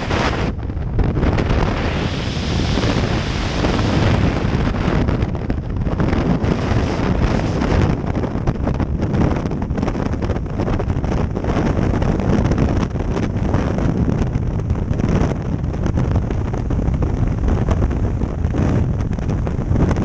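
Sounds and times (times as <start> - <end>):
wind roaring over microphone: 0.0 - 20.0.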